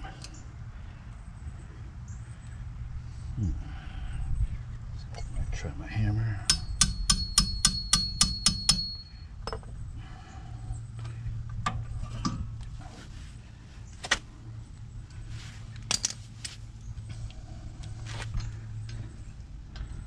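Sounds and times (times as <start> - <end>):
hammer striking metal hub: 6.4 - 9.6
tools and metal parts clinking: 15.7 - 16.6.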